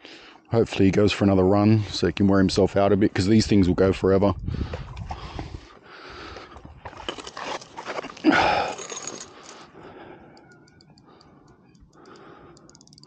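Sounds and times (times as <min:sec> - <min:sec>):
fishing reel clicking: 0:10.3 - 0:13.0.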